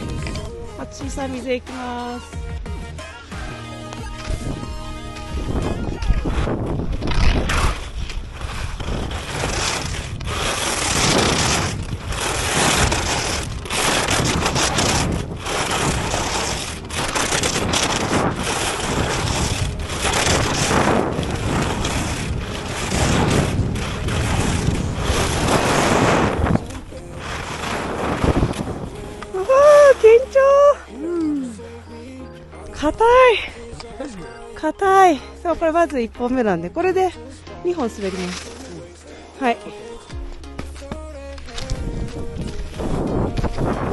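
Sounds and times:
skis scraping on hard snow: 0:04.1 - 0:30.4, 0:37.7 - 0:43.9.

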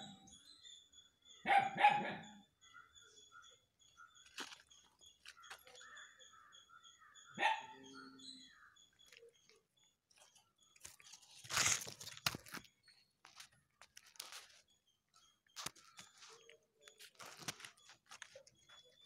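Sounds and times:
bark-like animal call: 0:01.4 - 0:02.4, 0:07.4 - 0:08.2
cat chewing with crunches: 0:10.7 - 0:14.7, 0:15.6 - 0:18.6.

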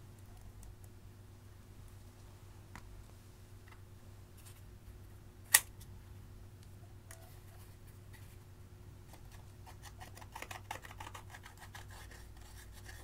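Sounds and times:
faint steady hum: 0:00.0 - 0:13.0
sharp loud click: 0:05.5 - 0:05.7.

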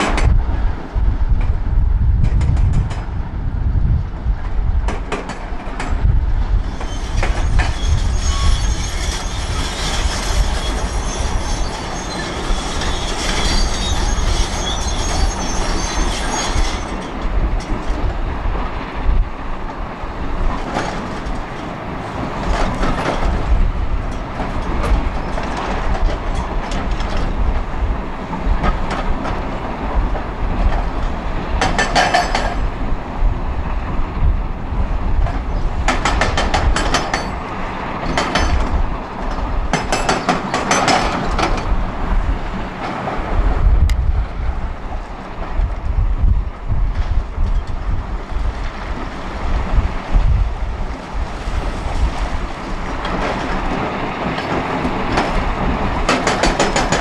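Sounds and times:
high metallic squealing: 0:06.7 - 0:17.1.

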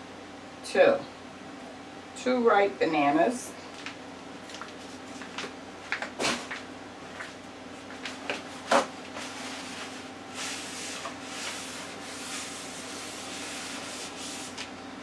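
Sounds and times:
paper towel rubbing countertop: 0:09.1 - 0:14.7.

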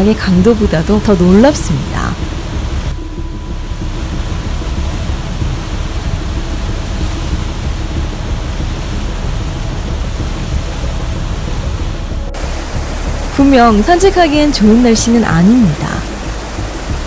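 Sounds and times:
low rumble: 0:00.0 - 0:17.0.

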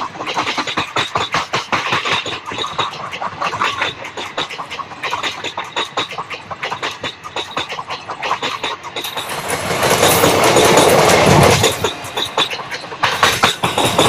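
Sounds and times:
train wheels clattering on track: 0:00.0 - 0:14.0
high wheel squeaks: 0:00.3 - 0:14.0.

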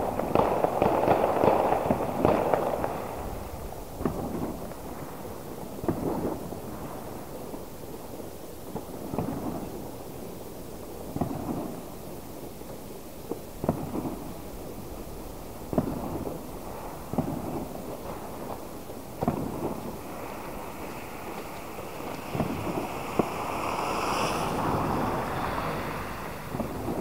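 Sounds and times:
muffled fireworks bangs echoing: 0:00.0 - 0:07.6, 0:08.7 - 0:09.9, 0:11.1 - 0:12.0, 0:12.7 - 0:23.6, 0:26.3 - 0:27.0.

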